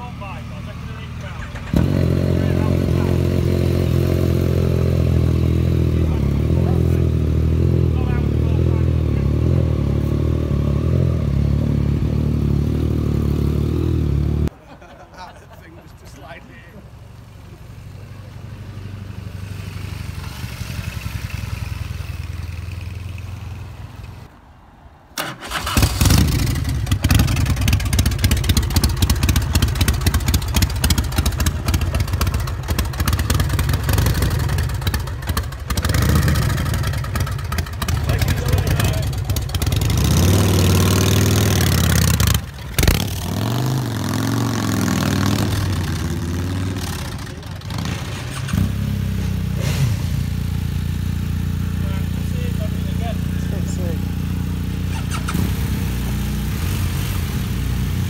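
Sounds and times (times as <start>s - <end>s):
quiet engine rumble: 0.0s - 43.3s
motorcycle engine revving: 0.9s - 14.5s, 18.2s - 24.3s, 25.2s - 58.0s.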